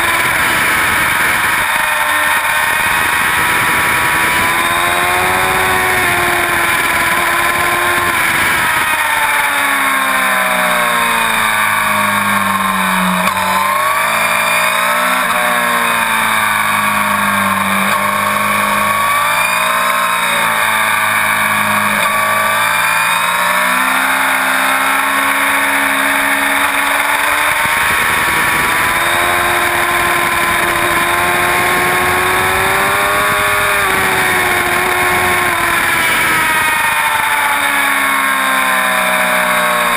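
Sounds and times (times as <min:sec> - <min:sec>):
motorcycle engine revving: 0:00.0 - 0:39.9
wind rushing over microphone: 0:27.2 - 0:37.0.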